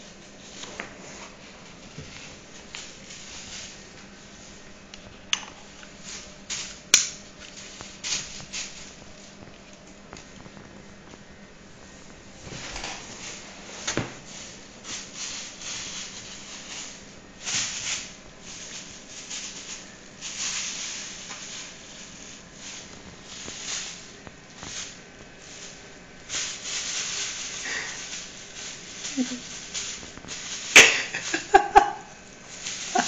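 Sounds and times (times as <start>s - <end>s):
plastic bag crinkling: 12.1s - 33.0s.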